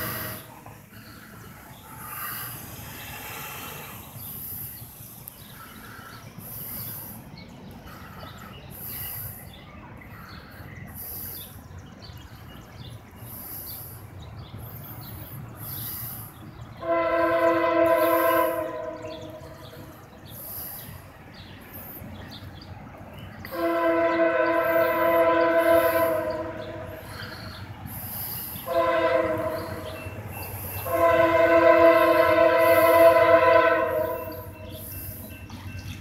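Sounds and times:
low rumble of train: 0.0 - 36.0
locomotive air horn: 16.8 - 19.8, 23.5 - 27.4, 28.5 - 35.2.

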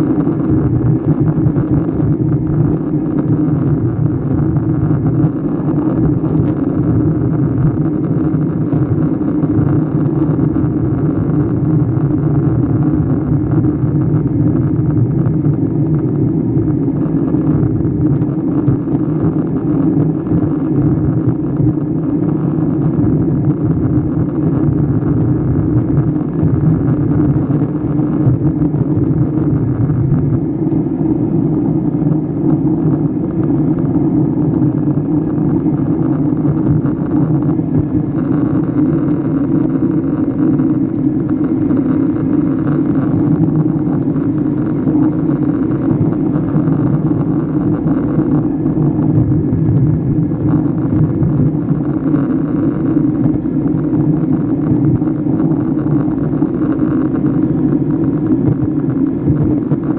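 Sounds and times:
jet engine hum: 0.0 - 59.9.

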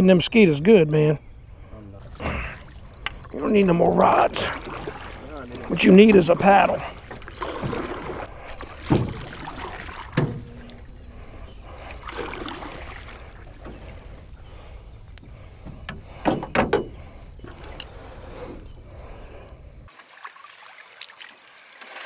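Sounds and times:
paddle swishing water: 2.0 - 22.0
paddle knocking metal hull: 3.5 - 11.1, 15.6 - 17.1.

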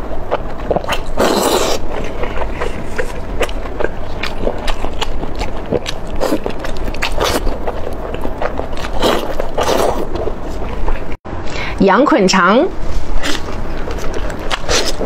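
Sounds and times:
wet slurp: 0.7 - 11.0.

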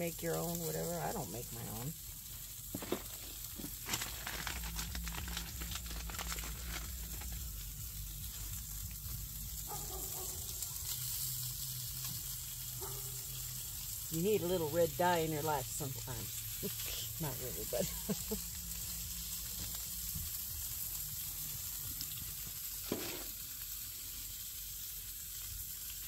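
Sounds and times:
food sizzling in a frying pan: 0.0 - 26.0.

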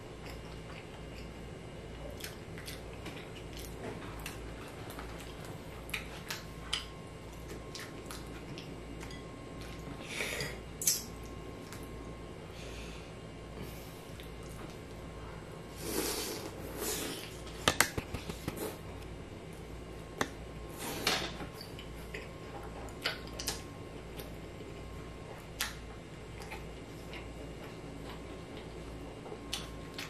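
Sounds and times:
low steady hum: 0.0 - 30.0
chewing with lip smacks: 2.0 - 10.0.

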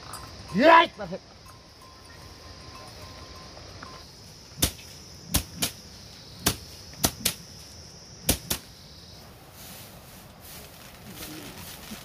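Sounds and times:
sticks beating dried plants: 4.6 - 5.8, 6.4 - 7.5, 8.2 - 8.7.

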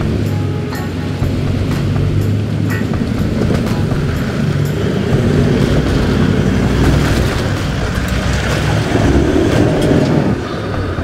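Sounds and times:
engine running under load: 0.0 - 11.0
tyres squelching through mud: 0.0 - 11.0.

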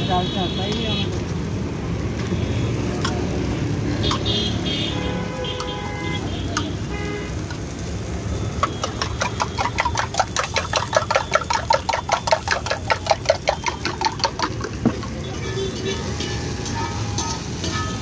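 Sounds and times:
spoon clinking in metal tumbler: 8.6 - 15.3.

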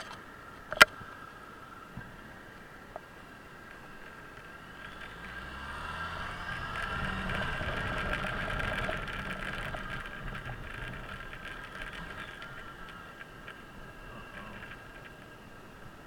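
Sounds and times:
road and wind noise: 0.0 - 16.0
scooter engine running: 4.0 - 15.3.

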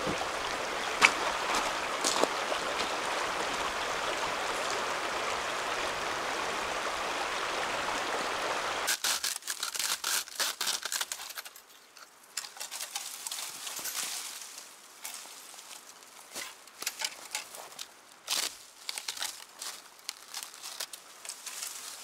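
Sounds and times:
stream rushing: 0.0 - 8.9.

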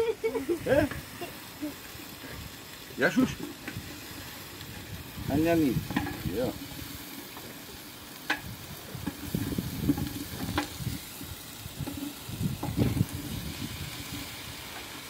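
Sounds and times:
wooden spoon scraping a metal pot: 5.8 - 6.7, 8.3 - 13.4.

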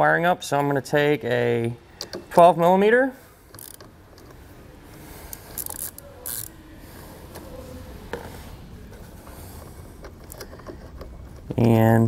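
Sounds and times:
ratchet wrench clicking: 3.5 - 3.9, 5.3 - 6.5.

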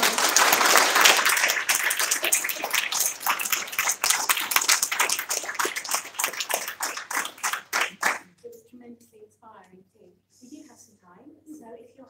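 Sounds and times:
audience clapping: 0.0 - 8.3.

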